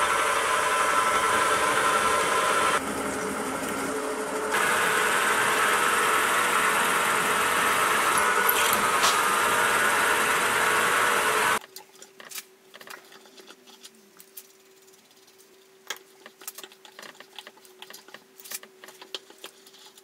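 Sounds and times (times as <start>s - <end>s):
milling machine drilling steel: 0.0s - 11.6s.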